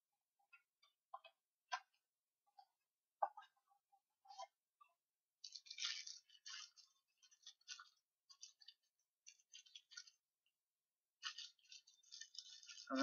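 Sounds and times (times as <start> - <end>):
foil packet crinkling: 5.4 - 10.2, 11.2 - 13.0.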